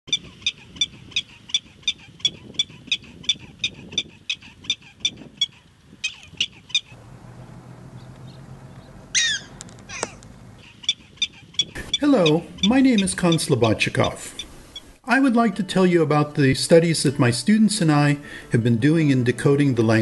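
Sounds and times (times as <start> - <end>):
prairie dog alarm chirps: 0.1 - 7.0, 9.1 - 15.0.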